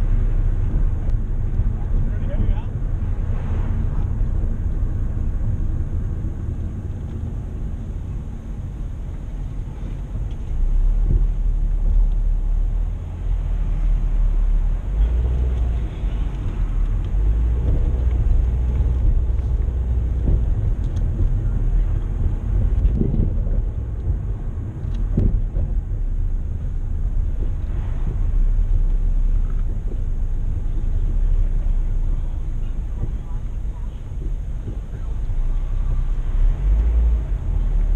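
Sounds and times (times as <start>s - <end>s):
car interior road rumble: 0.0s - 37.9s.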